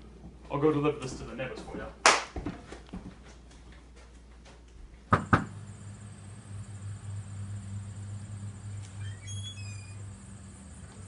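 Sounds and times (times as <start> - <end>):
steady low hum: 3.3 - 11.0.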